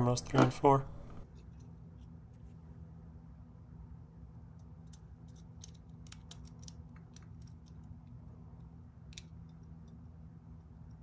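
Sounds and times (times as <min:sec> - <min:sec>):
steady low hum: 0:00.0 - 0:11.0
small plastic clicks: 0:04.6 - 0:07.9.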